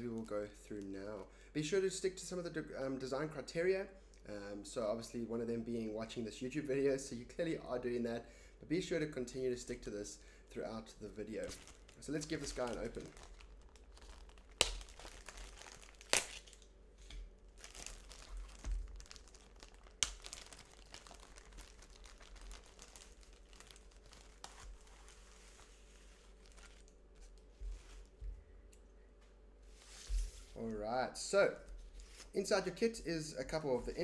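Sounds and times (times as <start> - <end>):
plastic bag crinkling: 11.1 - 16.8, 17.4 - 28.2.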